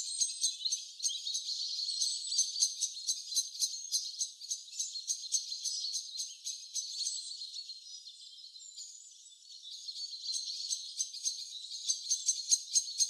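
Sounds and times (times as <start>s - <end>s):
birds chirping: 0.0s - 13.0s.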